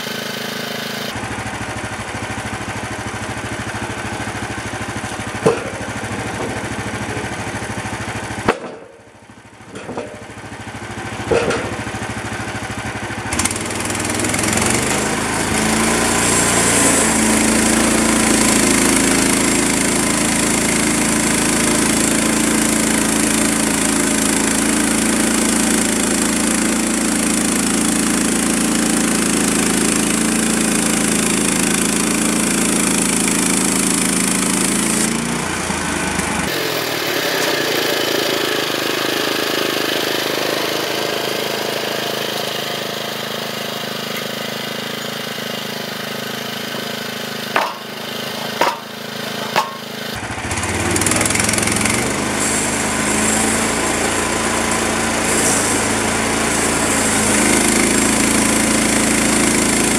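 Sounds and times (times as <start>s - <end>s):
band saw cutting log: 0.0s - 59.9s
small gasoline engine running: 0.0s - 59.9s
sharp knocks: 5.4s - 7.3s, 8.5s - 9.1s, 47.5s - 49.9s.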